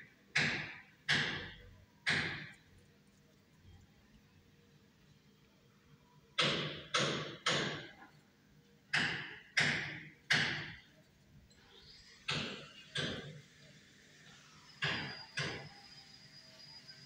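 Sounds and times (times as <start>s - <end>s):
sharp knocks: 0.3s - 2.6s, 6.4s - 8.0s, 8.9s - 10.8s, 12.3s - 13.3s.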